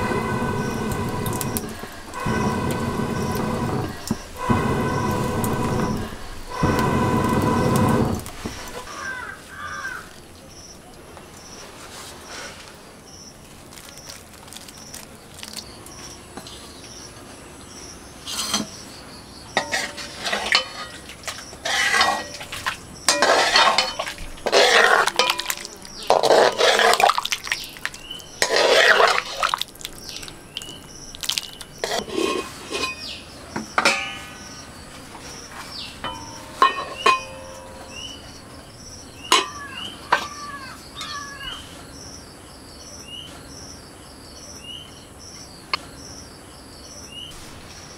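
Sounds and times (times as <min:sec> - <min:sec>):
wooden spoon scraping wok: 0:00.0 - 0:09.7, 0:18.3 - 0:18.8, 0:19.6 - 0:33.2, 0:33.8 - 0:38.4
birds chirping: 0:00.0 - 0:12.4, 0:22.3 - 0:47.9
metal ladle clinking wok: 0:23.1 - 0:25.6, 0:31.8 - 0:33.2, 0:33.8 - 0:34.6, 0:36.0 - 0:38.2, 0:39.3 - 0:40.3.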